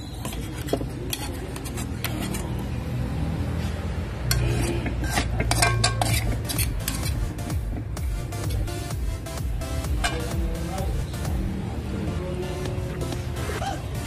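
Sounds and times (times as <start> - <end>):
metal spatula scraping a wok: 0.0 - 2.8, 3.5 - 7.4.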